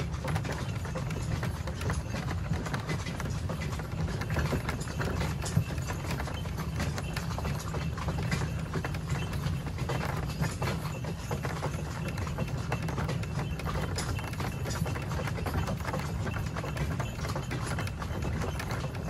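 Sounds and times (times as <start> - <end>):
cart wheels rumbling and rattling: 0.0 - 19.0
horse hooves clip-clopping on gravel: 0.0 - 19.0.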